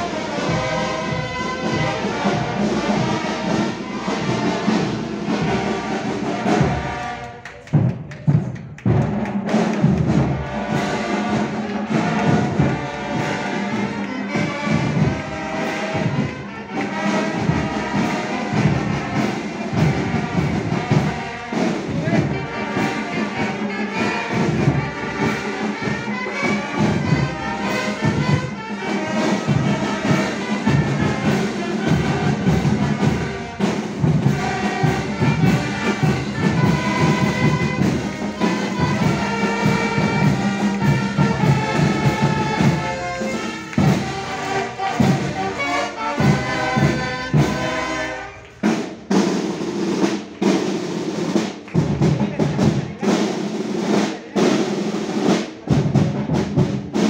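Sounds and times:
brass instruments playing tune: 0.0s - 8.2s, 8.8s - 57.0s
snare and bass drums marching beat: 0.0s - 57.0s.

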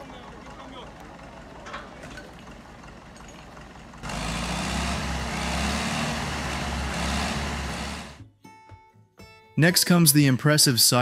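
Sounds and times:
heavy truck engine droning: 0.0s - 8.2s.

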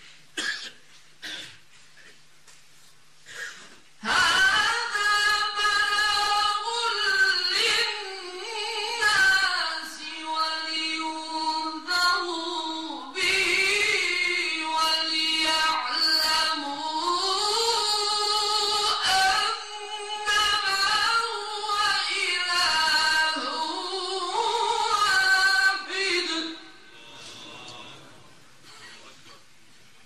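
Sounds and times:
man reciting melodically: 4.0s - 29.0s.

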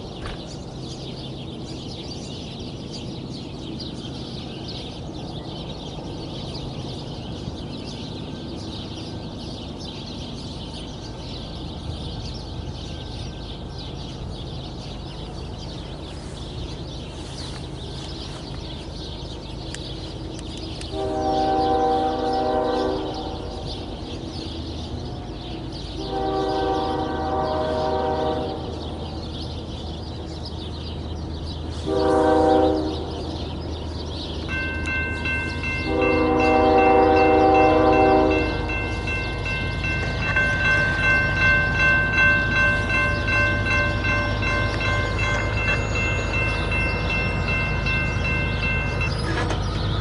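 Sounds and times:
train rumbling: 0.0s - 50.0s
locomotive air horn chord: 20.9s - 23.7s, 26.0s - 28.8s, 31.8s - 33.4s, 35.6s - 49.6s.

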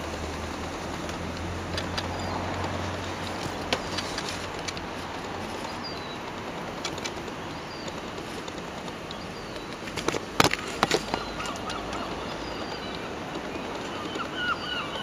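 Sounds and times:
bird chirps: 9.1s - 9.9s, 10.6s - 15.0s.

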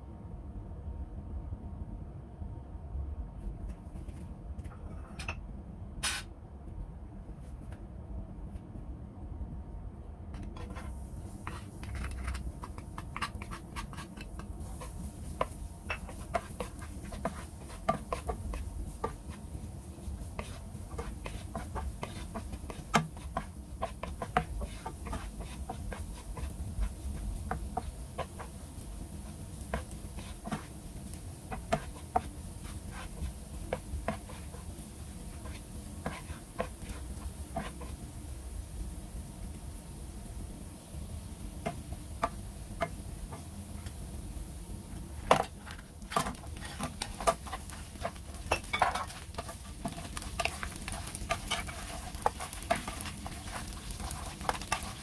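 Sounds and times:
wooden spatula scraping pan: 10.6s - 38.0s, 45.3s - 55.0s
garlic frying in hot oil: 10.6s - 55.0s.

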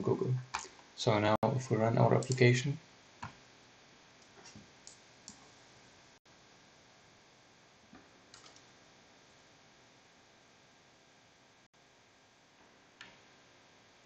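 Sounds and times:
faint computer clicks: 2.2s - 2.5s, 8.3s - 8.7s.

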